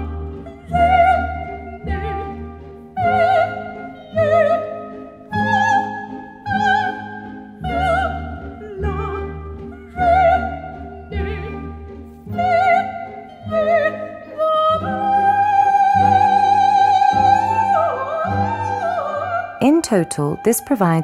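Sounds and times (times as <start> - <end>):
soprano singing: 0.0 - 21.0
orchestral accompaniment: 19.6 - 21.0.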